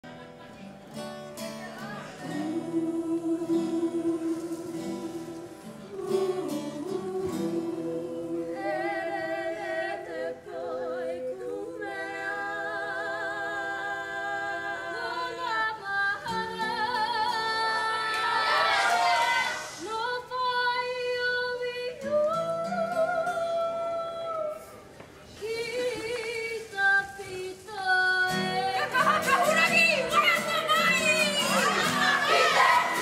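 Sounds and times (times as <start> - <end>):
group singing in unison: 1.8 - 20.4, 25.4 - 33.0.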